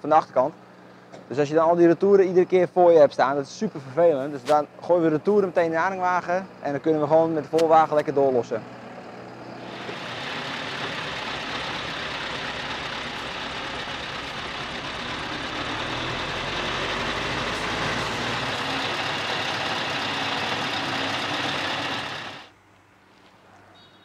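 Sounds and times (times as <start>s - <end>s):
truck engine rumble: 3.6s - 22.5s
tyre and road noise: 7.3s - 24.0s.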